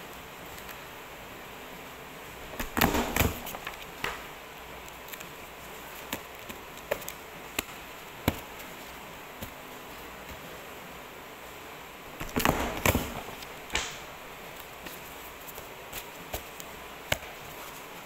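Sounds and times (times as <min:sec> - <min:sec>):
paper punch knocks and crackle: 0:02.6 - 0:04.3, 0:12.2 - 0:14.1.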